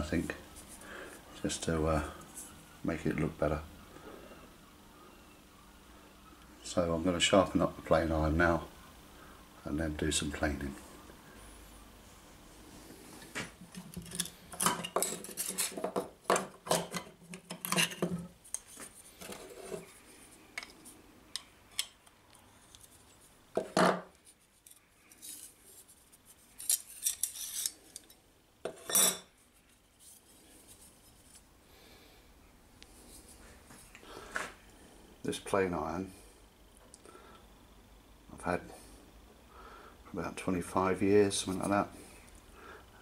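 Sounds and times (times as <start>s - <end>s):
metal parts clinking and scraping: 13.7s - 18.6s, 26.6s - 29.2s.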